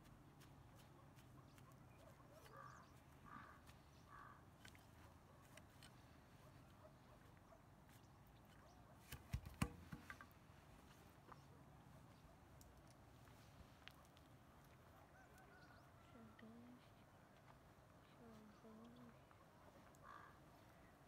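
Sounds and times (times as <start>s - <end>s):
bird calling: 1.2s - 9.1s, 18.1s - 21.0s.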